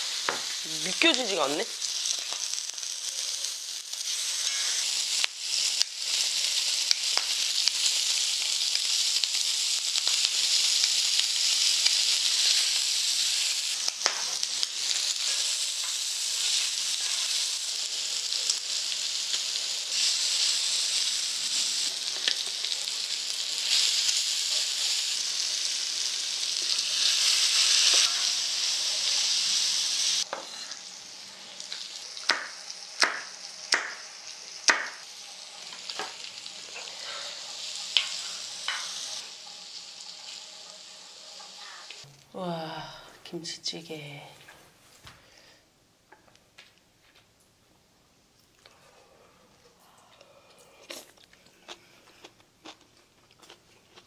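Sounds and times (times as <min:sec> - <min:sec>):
meat sizzling on griddle: 0:00.0 - 0:42.1
tongs clicking and scraping pan: 0:38.0 - 0:39.0.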